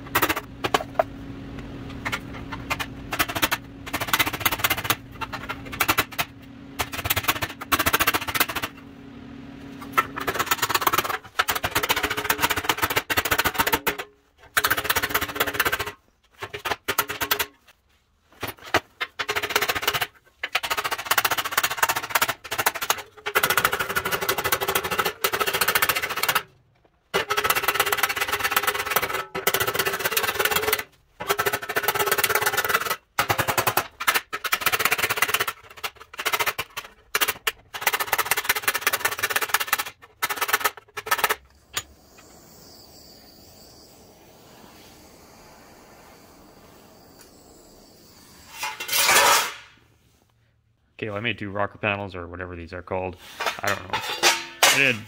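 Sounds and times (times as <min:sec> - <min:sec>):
faint steady hiss: 0:41.5 - 0:48.9
hammer striking sheet steel: 0:53.3 - 0:55.0.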